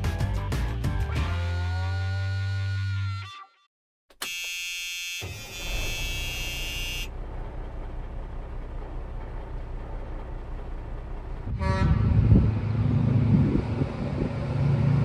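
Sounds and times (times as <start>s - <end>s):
high buzzing tone: 4.2s - 7.1s
truck engine idling: 5.5s - 11.8s.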